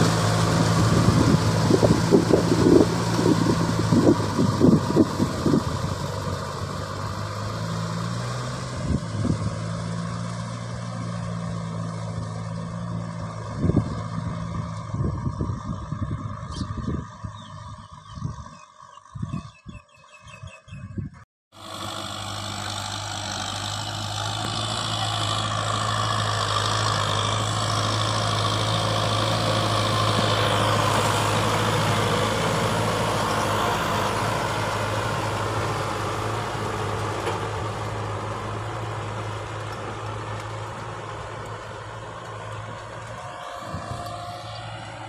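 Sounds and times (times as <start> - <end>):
rotary tiller churning soil: 0.0 - 10.8, 21.6 - 45.0
tractor diesel engine running: 0.0 - 19.8, 21.5 - 45.0.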